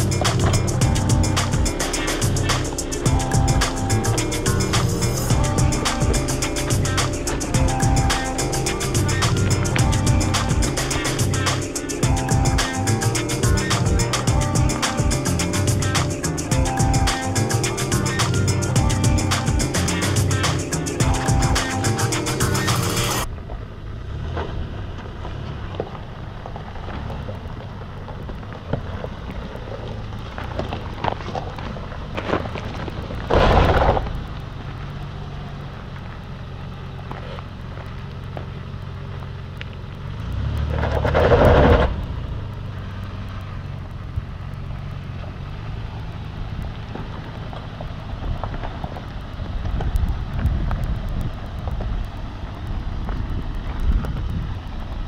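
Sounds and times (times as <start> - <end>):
rushes of noise: 0.0 - 35.6, 40.1 - 55.0
engine running at low revs: 0.0 - 55.0
tyres crunching on loose rock: 24.4 - 35.2.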